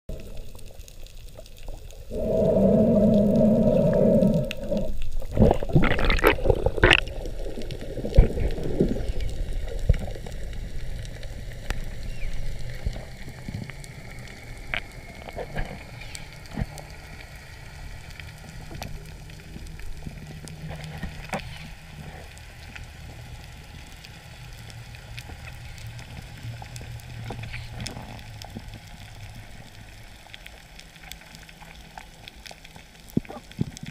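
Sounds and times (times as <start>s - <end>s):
faint ticks: 0.1s - 33.9s
low water rumble: 0.1s - 33.9s
loud underwater rushing: 2.1s - 7.1s.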